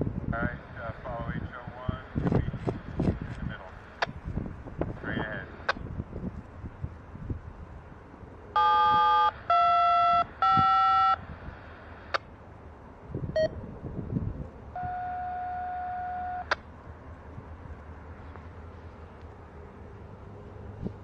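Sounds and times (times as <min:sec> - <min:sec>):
touch-tone dialing beeps: 0:08.6 - 0:11.2.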